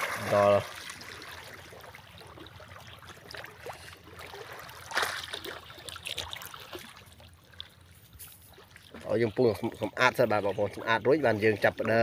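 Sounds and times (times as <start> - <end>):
muddy water sloshing from wading: 0.0 - 12.0.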